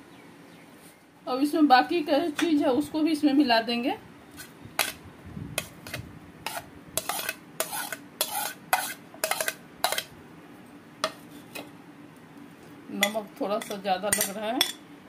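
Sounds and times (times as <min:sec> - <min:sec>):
spoon scraping a ceramic plate: 0:05.6 - 0:10.1, 0:13.0 - 0:14.8.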